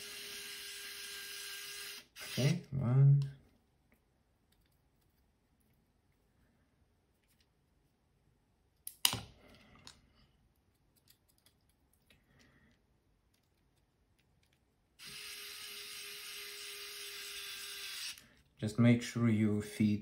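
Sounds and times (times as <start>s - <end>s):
electric screwdriver running: 0.0s - 2.7s, 15.0s - 18.2s
small parts clacking: 8.8s - 14.7s.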